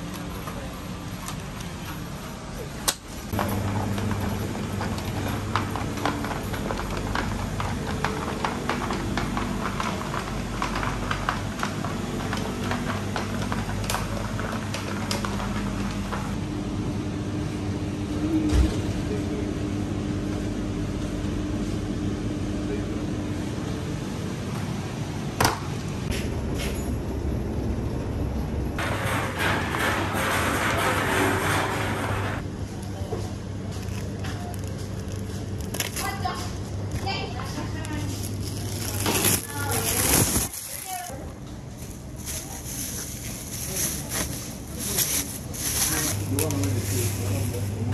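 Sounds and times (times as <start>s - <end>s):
steady low hum: 32.3s - 47.9s.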